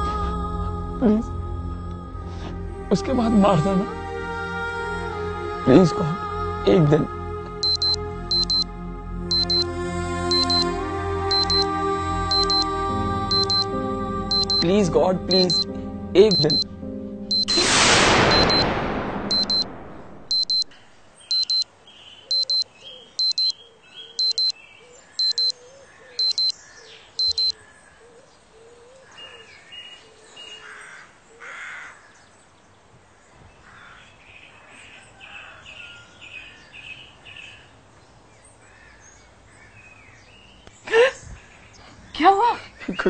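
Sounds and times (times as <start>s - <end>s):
electronic alarm beeping: 7.6s - 8.7s, 9.3s - 9.7s, 10.3s - 10.7s, 11.3s - 11.7s, 12.3s - 12.7s, 13.3s - 13.7s, 14.3s - 14.7s, 15.3s - 16.7s, 17.3s - 21.7s, 22.3s - 23.6s, 24.2s - 24.6s, 25.2s - 25.6s, 26.2s - 26.6s, 27.2s - 27.6s
faint birds chirping: 20.5s - 43.0s.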